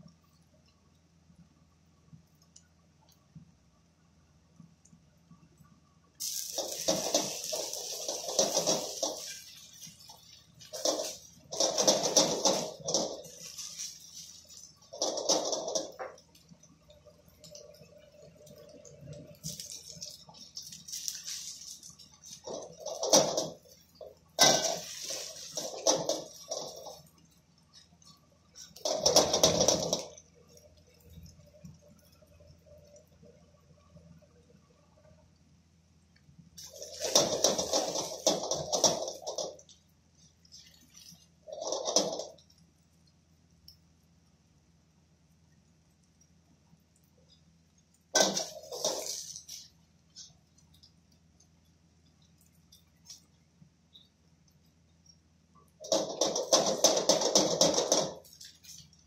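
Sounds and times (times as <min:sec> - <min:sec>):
noodles sizzling in hot oil: 0:06.2 - 0:33.2, 0:36.6 - 0:43.0, 0:48.0 - 0:54.0
spatula scraping a wok: 0:06.6 - 0:16.2, 0:24.4 - 0:27.1, 0:48.2 - 0:49.7.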